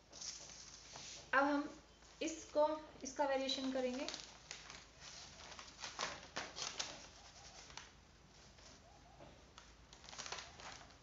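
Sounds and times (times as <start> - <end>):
paper crackles: 0.0 - 1.3, 3.6 - 11.0
paper rustling: 0.0 - 1.3, 3.6 - 11.0.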